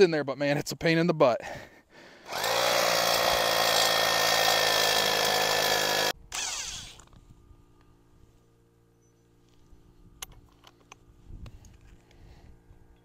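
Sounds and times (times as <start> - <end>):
electric drill boring into concrete: 2.3 - 7.1.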